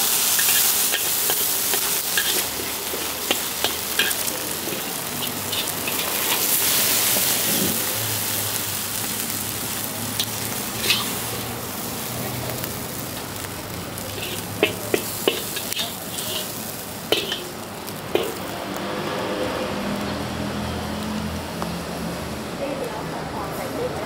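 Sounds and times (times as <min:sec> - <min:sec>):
noodles sizzling in pan: 0:00.0 - 0:22.3
spatula clicking on pan: 0:14.2 - 0:16.5, 0:17.1 - 0:17.4.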